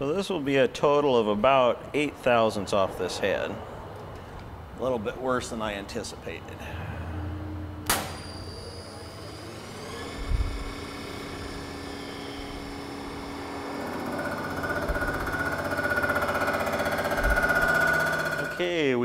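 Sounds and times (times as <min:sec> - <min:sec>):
motor whine: 0:07.0 - 0:18.6
ringing whine of rotary cutter: 0:07.9 - 0:18.7.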